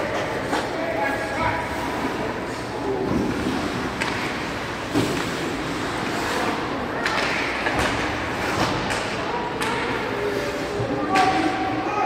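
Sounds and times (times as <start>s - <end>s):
skates and arena noise: 0.0s - 12.0s
hockey sticks knocking puck: 3.1s - 10.0s.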